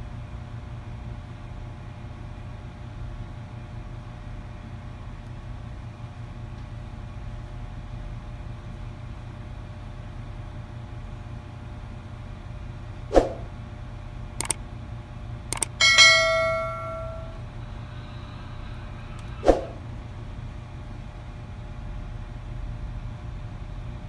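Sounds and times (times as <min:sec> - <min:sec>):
notification bell ding: 0:15.8 - 0:17.4.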